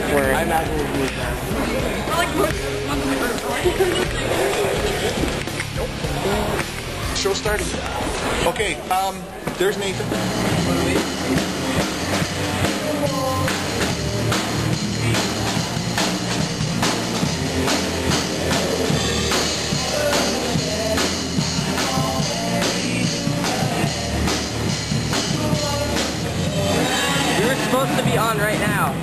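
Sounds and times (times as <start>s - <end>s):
drum kit beating: 0.0s - 29.0s
live rock band: 9.5s - 29.0s.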